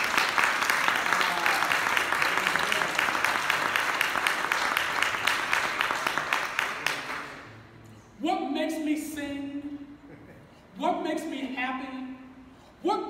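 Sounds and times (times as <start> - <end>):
congregation applauding: 0.0 - 7.5.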